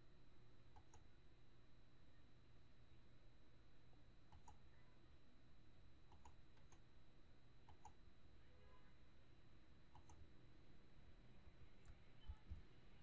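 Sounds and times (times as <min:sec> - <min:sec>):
low steady hum: 0:00.0 - 0:13.0
computer mouse clicks: 0:00.7 - 0:01.1, 0:04.3 - 0:04.6, 0:06.1 - 0:06.8, 0:07.6 - 0:08.0, 0:09.9 - 0:10.2.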